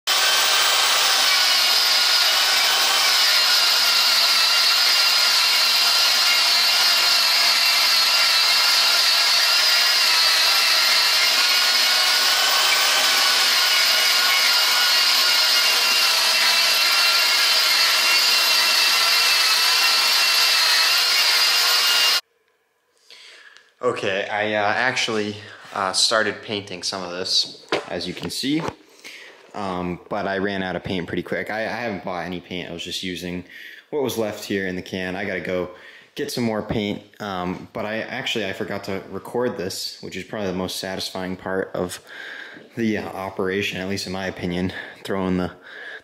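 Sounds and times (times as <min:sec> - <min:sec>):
angle grinder motor whine: 0:00.1 - 0:22.2
grinding disc scraping metal: 0:00.1 - 0:22.2.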